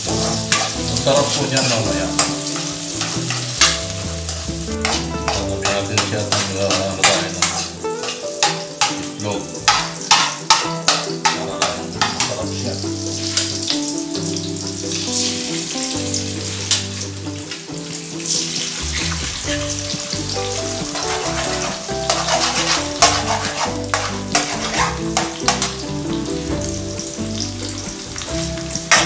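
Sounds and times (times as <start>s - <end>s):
metal spoon scraping a wok: 0.0s - 12.3s, 18.9s - 25.9s
background music: 0.0s - 29.0s
food sizzling in hot oil: 0.0s - 29.0s.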